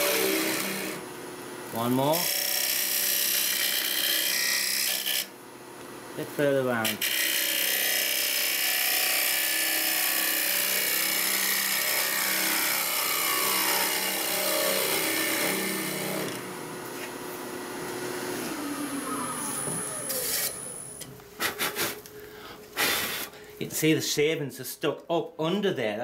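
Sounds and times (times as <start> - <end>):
wood lathe running: 0.0 - 1.0, 1.7 - 5.3, 6.9 - 16.5.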